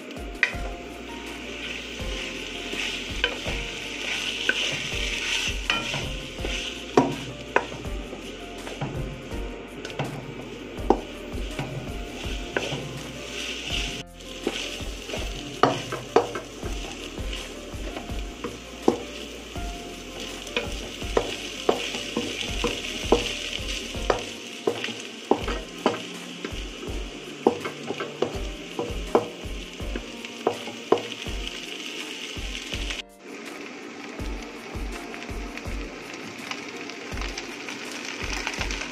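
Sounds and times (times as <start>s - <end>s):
fried rice sizzling in pan: 0.0s - 38.9s
spatula scraping pan: 1.3s - 9.0s, 9.9s - 31.3s
spatula knocking on pan: 13.7s - 19.7s, 20.6s - 31.6s.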